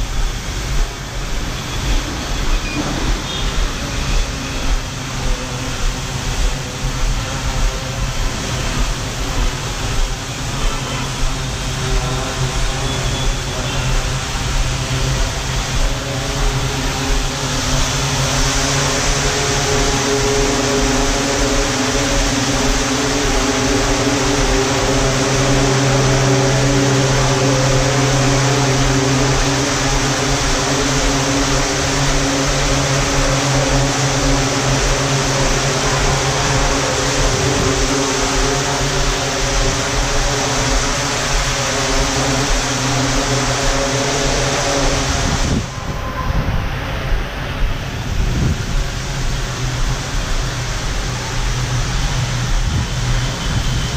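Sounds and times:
drone propellers buzzing: 0.0 - 53.9.

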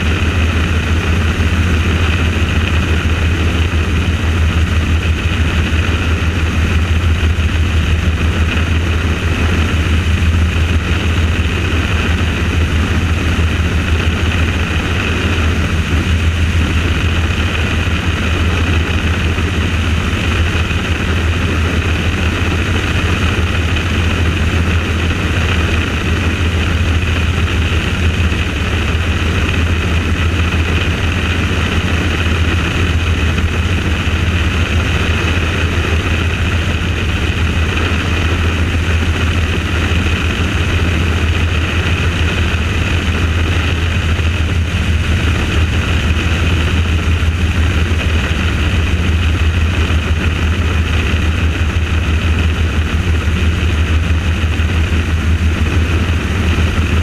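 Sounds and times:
helicopter rotor and engine noise: 0.0 - 57.0.

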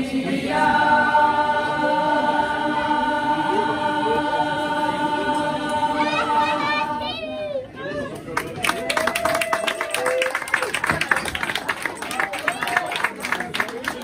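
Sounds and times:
choir holding a long chord: 0.0 - 7.3.

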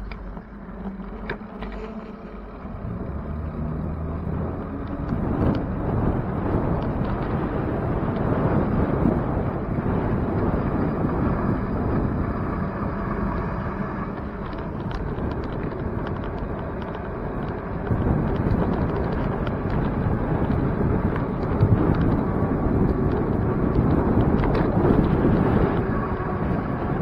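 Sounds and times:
bike clicks and rattles: 0.0 - 3.1, 3.8 - 27.0
wind rumbling over microphone: 0.0 - 27.0.

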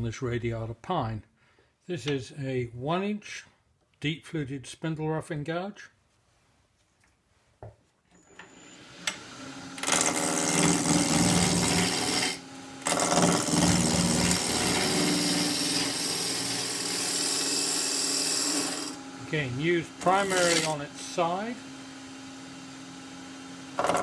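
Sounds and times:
wood lathe spinning up: 8.8 - 21.7, 23.7 - 24.0
gouge rasping on spinning wood: 9.8 - 19.0, 20.0 - 20.8.

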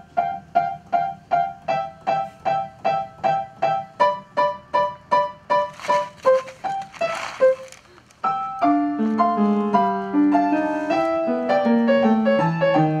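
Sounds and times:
solo piano music: 0.0 - 13.0.

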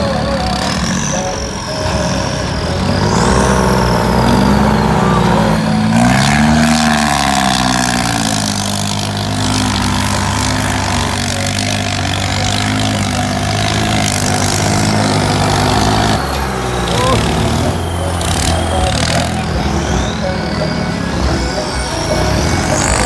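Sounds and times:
tractor diesel engine under load: 0.0 - 23.0.

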